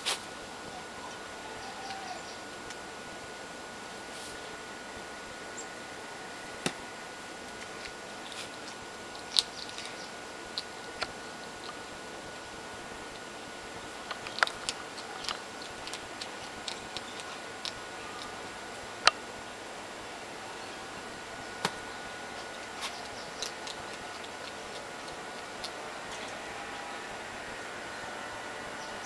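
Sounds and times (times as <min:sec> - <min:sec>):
steady hiss: 0:00.0 - 0:29.0
faint high tone: 0:00.7 - 0:02.5, 0:17.9 - 0:18.5
sharp clicks and ticks: 0:14.0 - 0:18.3.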